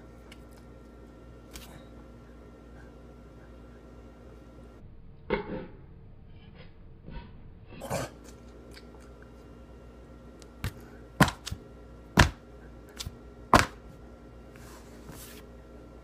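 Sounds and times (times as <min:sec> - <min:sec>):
hands slapping: 0:10.6 - 0:11.6, 0:12.2 - 0:12.4, 0:13.0 - 0:13.8.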